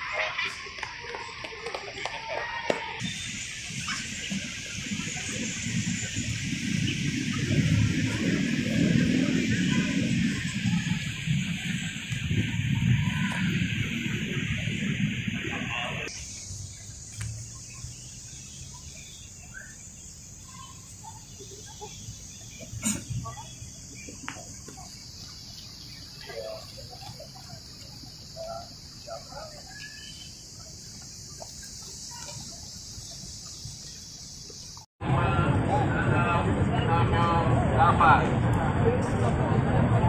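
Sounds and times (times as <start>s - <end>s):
faint chirps: 3.0s - 14.6s, 15.5s - 34.9s.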